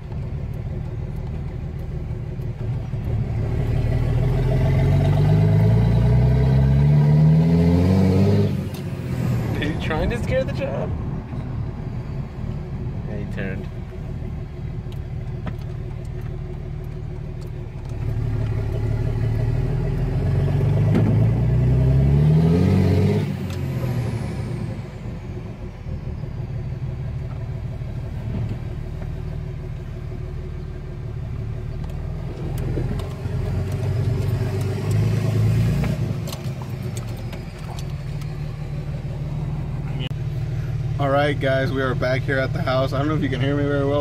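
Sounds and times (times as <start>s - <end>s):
diesel engine while driving: 0.0s - 44.0s.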